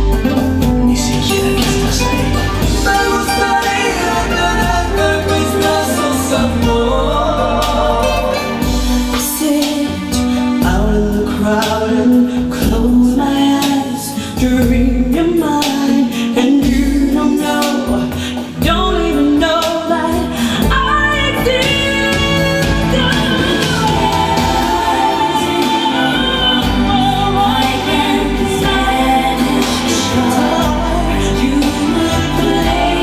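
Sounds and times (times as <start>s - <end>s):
vocal music with strong bass: 0.0s - 33.0s.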